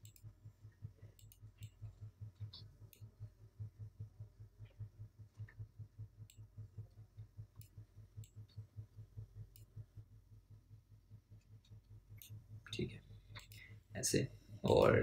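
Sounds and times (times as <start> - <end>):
computer mouse clicks: 0.0 - 0.4, 1.0 - 3.1, 7.2 - 8.6, 9.5 - 9.8, 13.3 - 13.7
low pulsing hum: 0.0 - 15.0.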